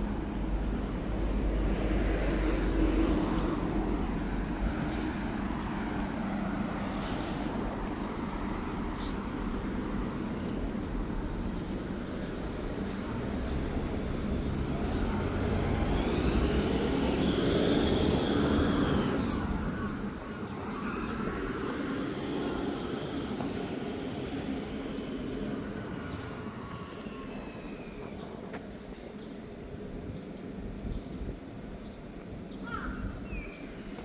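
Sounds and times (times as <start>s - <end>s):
steady road traffic: 0.0s - 34.0s
vehicle passing close by: 13.6s - 24.2s.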